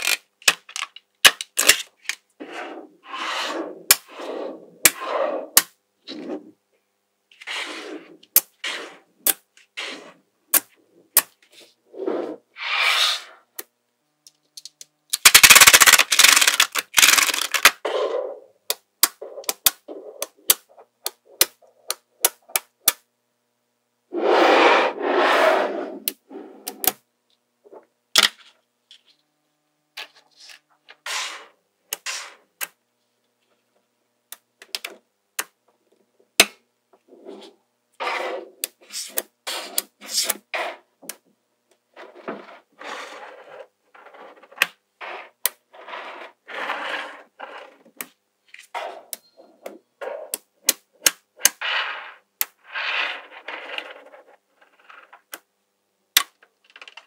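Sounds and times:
magnetic balls clicking together: 14.3 - 17.8, 18.7 - 23.0.

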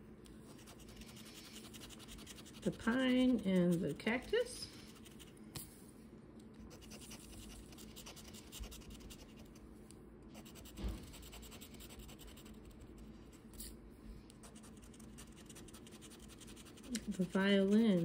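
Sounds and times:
scratching a scratch-off ticket: 0.6 - 4.3, 14.5 - 18.0
thump: 10.7 - 11.2.

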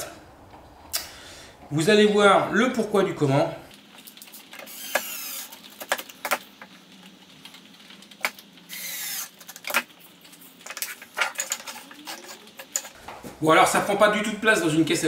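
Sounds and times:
cordless drill whirring: 4.7 - 5.5, 8.7 - 9.3.

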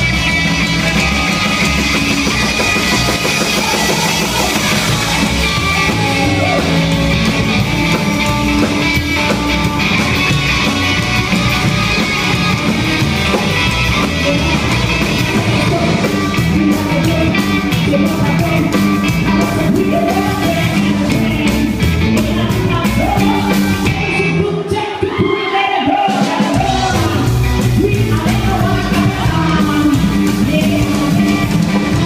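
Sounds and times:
upright double bass: 0.0 - 24.4, 26.6 - 32.0
drum kit: 0.0 - 32.0
electric guitar: 0.0 - 32.0
woman singing: 13.9 - 32.0.

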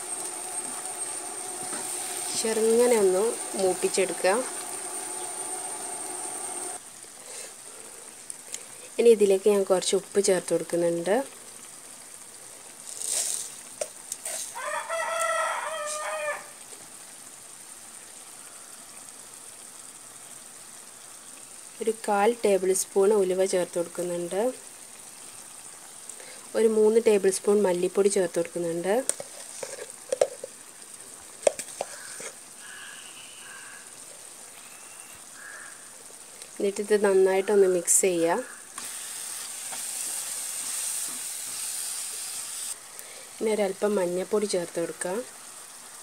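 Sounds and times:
vegetables sizzling in oil: 0.0 - 46.0
rooster crowing: 14.5 - 16.6, 31.9 - 34.0.

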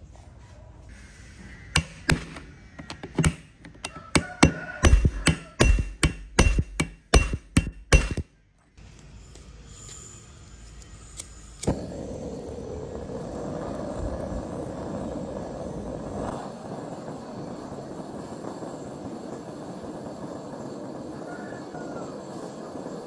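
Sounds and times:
torch flame hissing: 0.9 - 2.8, 8.8 - 23.0.

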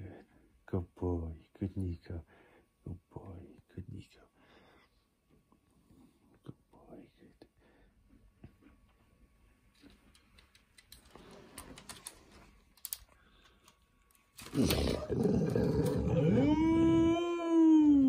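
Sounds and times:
animal growl turning into yowl: 14.5 - 18.0.

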